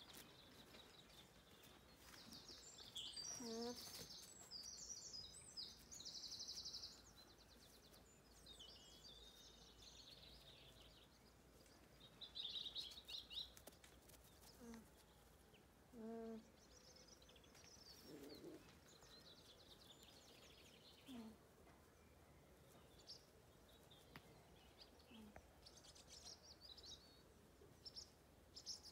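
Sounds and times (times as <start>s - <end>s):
songbirds singing faintly: 0.0s - 28.9s.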